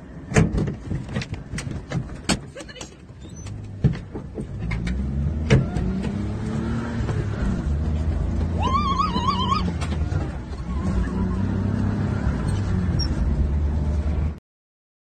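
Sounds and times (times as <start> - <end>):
car engine running inside cabin: 3.5 - 14.4
wavering high-pitched cry: 8.6 - 9.8.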